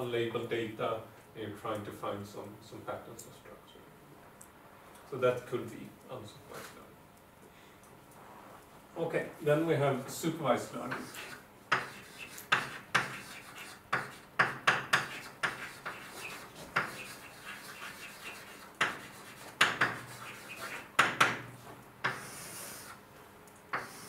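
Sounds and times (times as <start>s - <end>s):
chalk tapping and scratching on blackboard: 10.9s - 23.0s, 23.7s - 24.0s.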